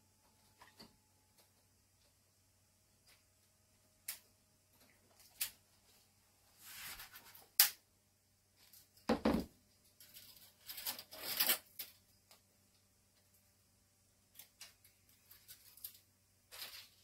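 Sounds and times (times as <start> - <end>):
rustling of small items: 8.5 - 17.0.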